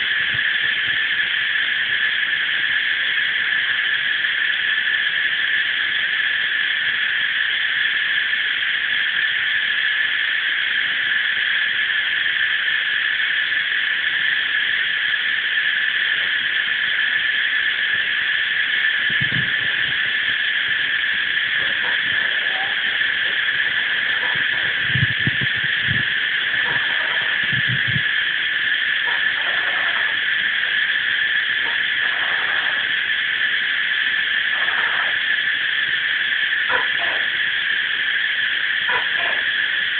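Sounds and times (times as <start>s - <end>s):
cicadas chorus: 0.0s - 39.9s
short low calls: 18.8s - 33.4s.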